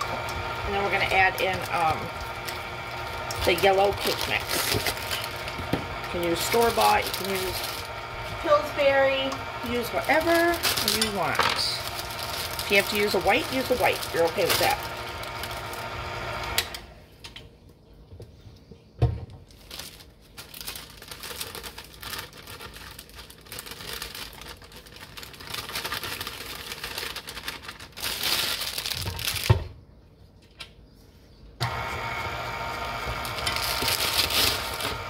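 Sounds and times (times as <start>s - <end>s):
electric mixer running: 0.0s - 17.0s, 31.6s - 35.0s
package rustling: 0.7s - 8.0s, 9.7s - 16.6s, 19.4s - 29.7s, 33.2s - 35.0s.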